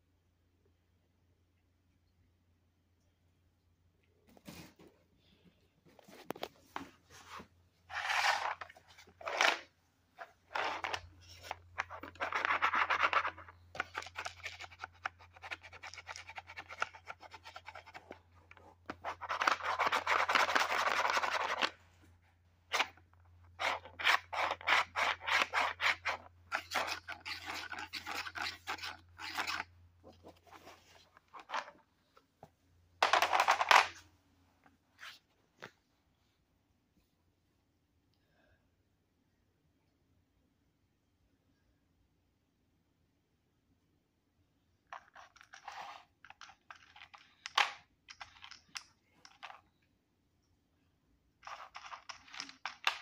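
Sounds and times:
plastic rubbing and scraping: 5.9s - 21.9s, 22.7s - 31.9s.

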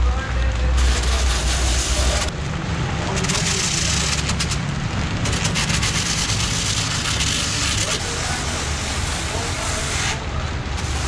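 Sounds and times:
angle grinder grinding rubber: 5.2s - 10.2s.

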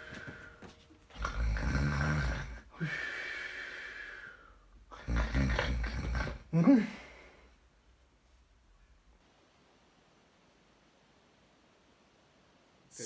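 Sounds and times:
snorts: 1.2s - 2.6s, 4.9s - 6.6s
man snoring: 1.2s - 3.2s, 4.9s - 6.7s.

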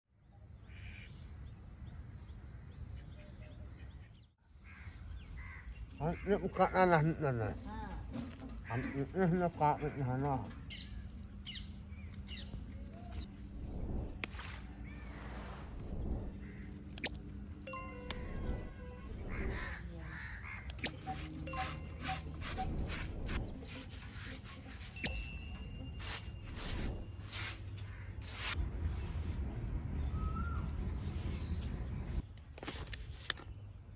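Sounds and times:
small birds chirping: 0.4s - 24.2s
steady low rumble: 10.6s - 20.6s
crow cawing: 19.3s - 20.7s
rough scraping strokes: 20.8s - 29.8s.

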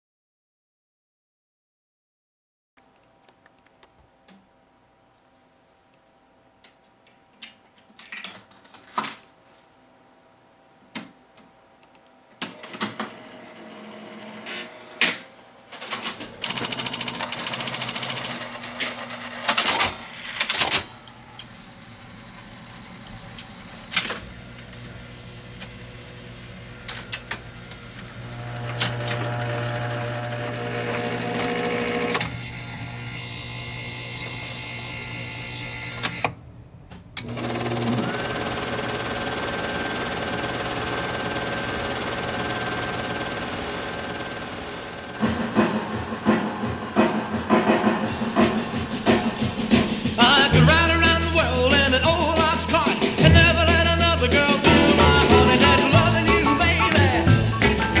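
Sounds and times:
motor running with low hum: 20.9s - 36.2s.

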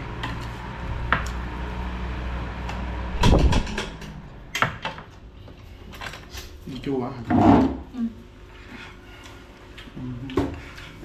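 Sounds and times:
steady low hum: 0.7s - 6.8s.

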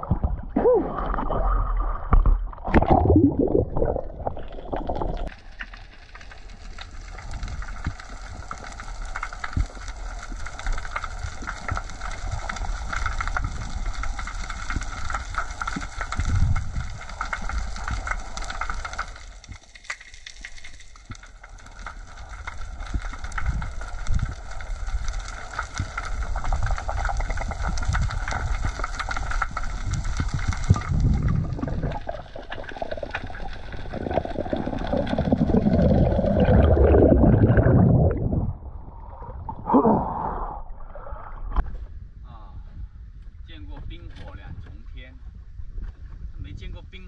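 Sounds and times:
seawater gurgling and sloshing: 0.0s - 5.4s, 26.8s - 41.6s.

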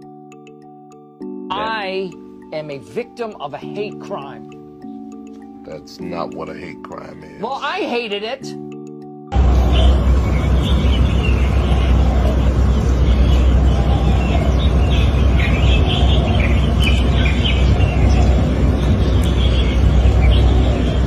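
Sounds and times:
small birds chirping: 1.6s - 7.2s, 9.4s - 21.0s
loud low rumble: 9.3s - 21.0s.

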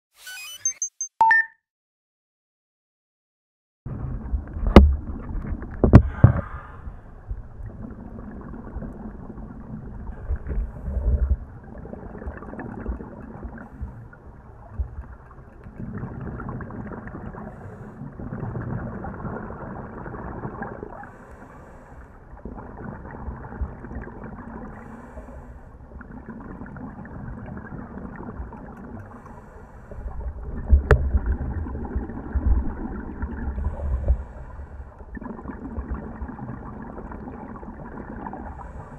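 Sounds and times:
diver's regulator breathing: 5.9s - 7.2s, 17.4s - 18.2s, 21.0s - 22.3s, 24.7s - 25.8s, 29.0s - 30.2s, 33.5s - 35.1s, 38.5s - 38.9s
bubbling exhaled air: 15.8s - 38.9s.

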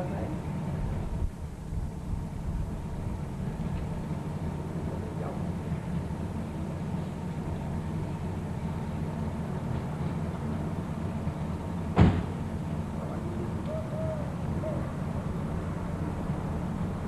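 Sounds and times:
low street rumble: 0.0s - 17.0s
car door slamming: 11.9s - 12.4s.

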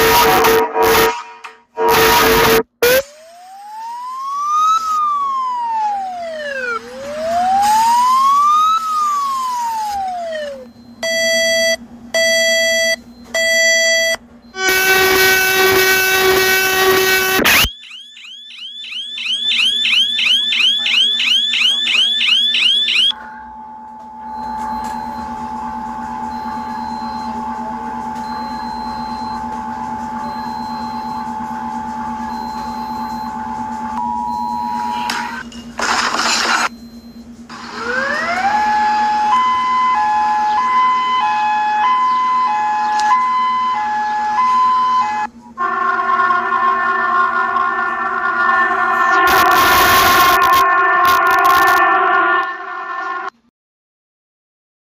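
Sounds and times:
long steady alarm tone: 0.0s - 35.5s, 36.6s - 53.4s
siren wailing up and down: 0.0s - 36.8s, 37.5s - 53.4s
harsh multi-tone alarm blast: 0.0s - 53.5s
short alarm beeps: 10.7s - 15.9s, 28.1s - 35.5s, 48.6s - 51.9s.

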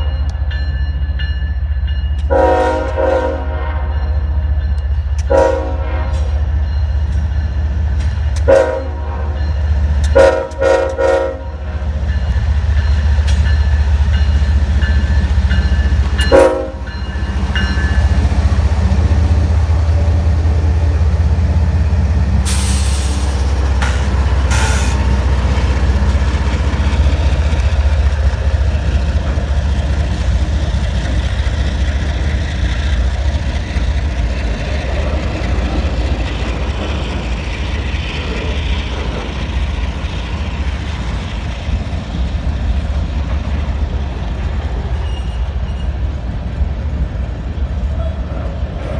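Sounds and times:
train wheel noise: 0.0s - 48.9s
train horn blasts: 2.3s - 4.0s, 5.3s - 6.4s, 8.4s - 9.3s, 10.1s - 11.7s, 16.2s - 16.9s.

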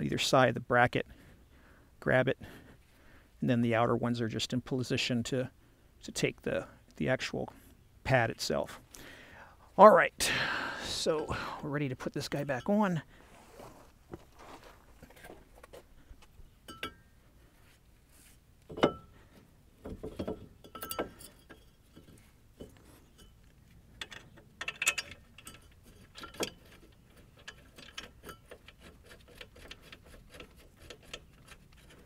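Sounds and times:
metallic clicks and knocks: 18.6s - 19.2s, 19.8s - 32.0s.

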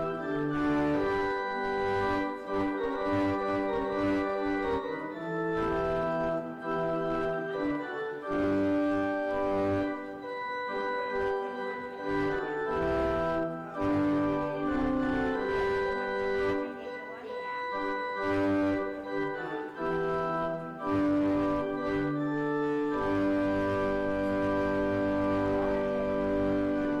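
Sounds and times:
organ music: 0.0s - 27.0s.

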